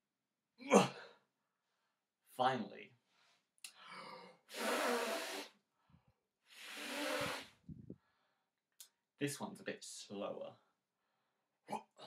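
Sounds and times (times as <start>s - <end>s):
man blowing through lips: 4.5s - 5.6s, 6.5s - 7.9s.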